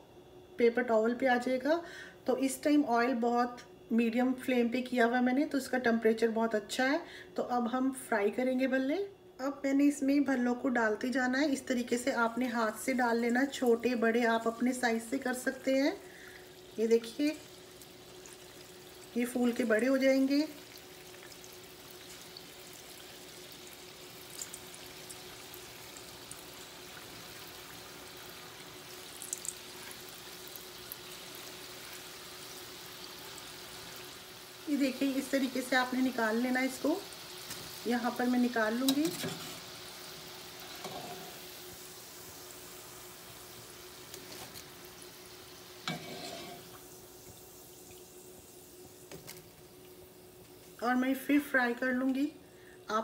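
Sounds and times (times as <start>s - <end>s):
batter sizzling in oil: 11.5s - 52.3s
oil crackling: 20.4s - 34.0s.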